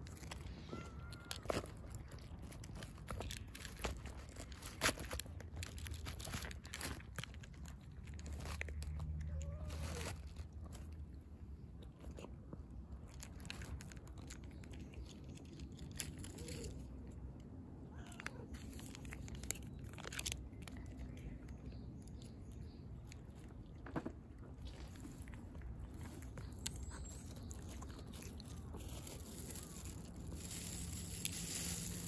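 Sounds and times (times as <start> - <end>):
cat crunching dry kibble: 0.0 - 32.0.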